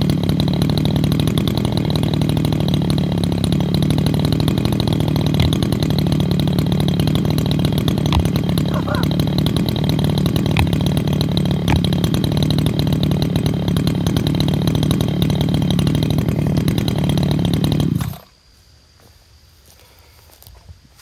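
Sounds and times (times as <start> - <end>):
chainsaw engine running: 0.0 - 18.4.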